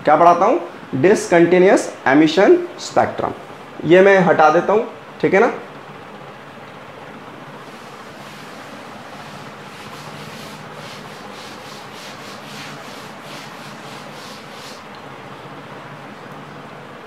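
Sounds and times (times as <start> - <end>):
cloth wiping chalkboard: 7.6 - 14.9.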